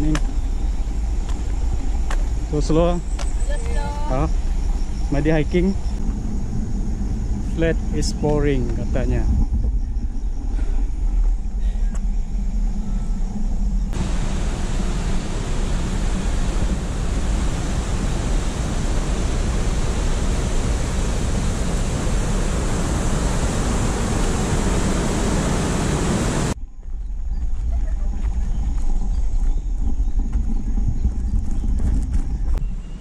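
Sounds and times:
wind rumble on microphone: 0.0 - 33.0
waterfall and stream rushing: 14.0 - 26.6.

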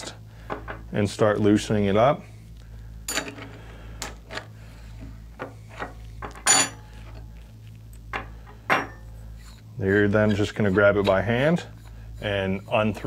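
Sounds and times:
wrenches clinking against metal: 6.4 - 6.8.

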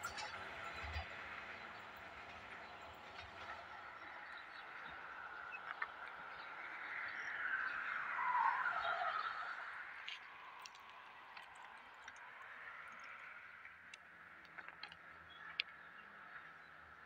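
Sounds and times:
vehicle passing on overpass: 0.0 - 17.0.

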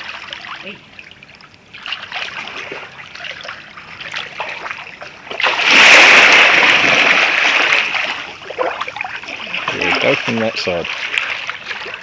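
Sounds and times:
loud churning water: 0.0 - 12.0
pool water splashing: 0.0 - 12.0
big splash: 5.3 - 12.0.

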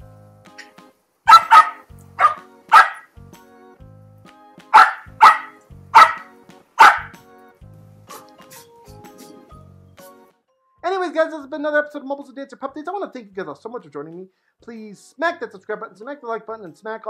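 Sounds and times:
dog barking: 1.3 - 3.1, 4.7 - 7.2.

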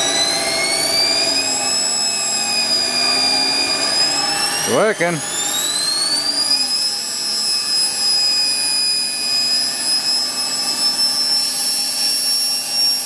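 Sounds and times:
electric motor whining: 0.0 - 13.0.

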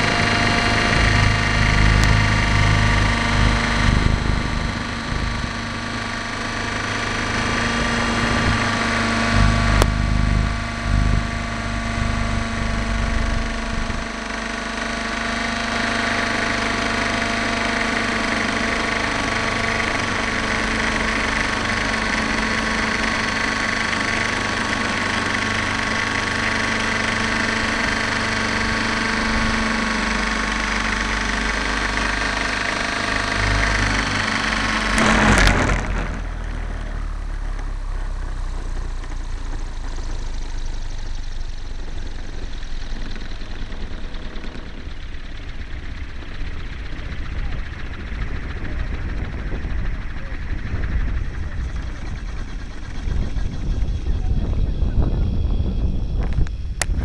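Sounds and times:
model helicopter engine whining: 0.0 - 57.0.

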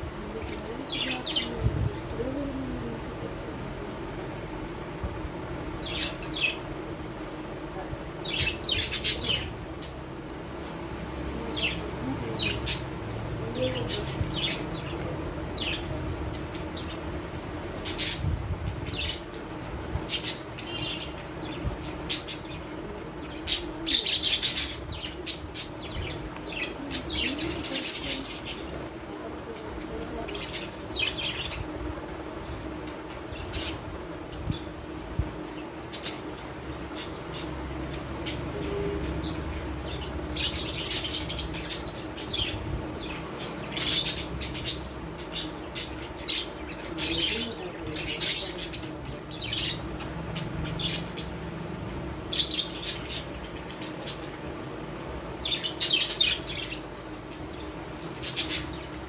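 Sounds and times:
steady low hum: 0.0 - 59.0
parrots chirping: 8.2 - 9.9, 35.5 - 59.0.

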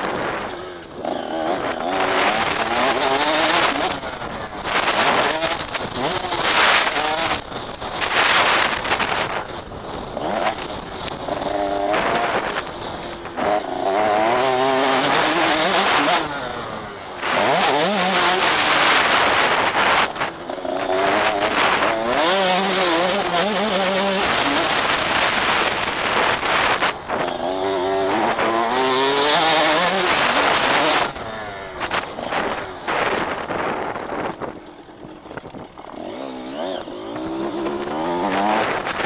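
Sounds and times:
motorcycle engine revving: 0.0 - 39.0
wind on microphone: 17.2 - 39.0.

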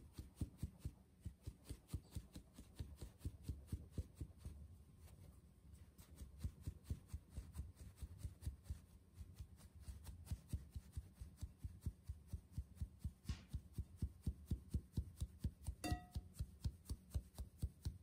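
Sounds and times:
palm tapping metal sieve rim: 15.8 - 16.5.

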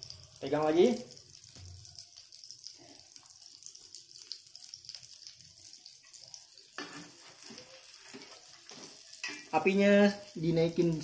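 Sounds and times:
food sizzling in oil: 0.0 - 11.0
spatula scraping pan: 6.0 - 9.8.

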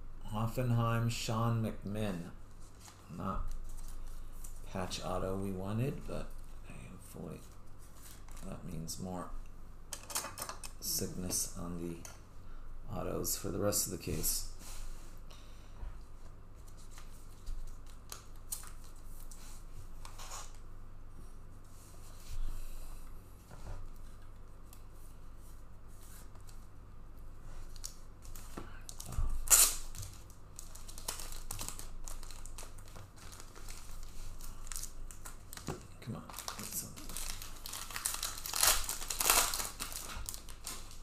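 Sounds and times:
packaging tearing and crinkling: 27.8 - 41.0.

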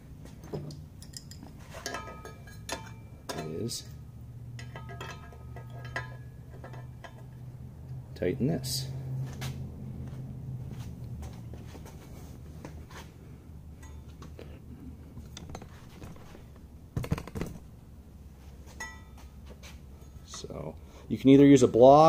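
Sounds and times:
light metallic clinks: 0.6 - 4.0, 13.8 - 14.4, 18.8 - 19.4.

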